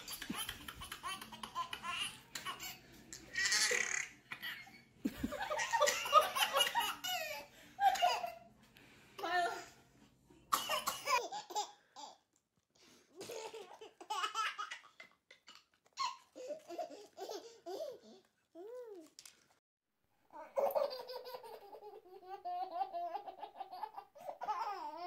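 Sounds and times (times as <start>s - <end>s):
baby laughing: 0.0s - 8.5s, 13.2s - 19.0s, 20.4s - 25.0s.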